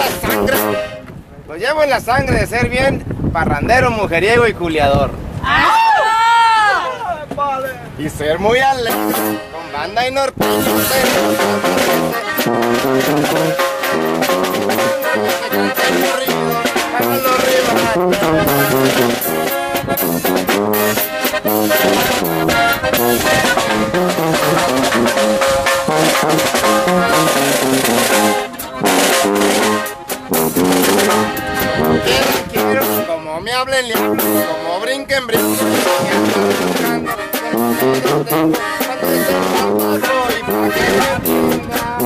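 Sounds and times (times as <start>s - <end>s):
steady drum beat: 0.0s - 0.9s, 8.9s - 9.4s, 10.4s - 33.1s, 33.9s - 34.6s, 35.3s - 42.0s
brass section playing: 0.0s - 1.1s, 8.8s - 33.2s, 33.9s - 42.0s.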